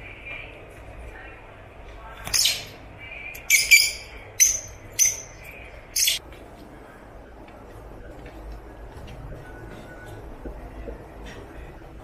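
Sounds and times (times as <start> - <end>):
lovebirds calling: 2.3 - 6.2.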